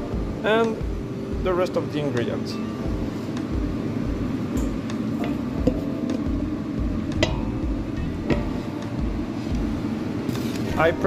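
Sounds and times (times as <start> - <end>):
kitchen ventilation hum: 0.0 - 11.0
containers knocking on a bowl: 5.2 - 6.3.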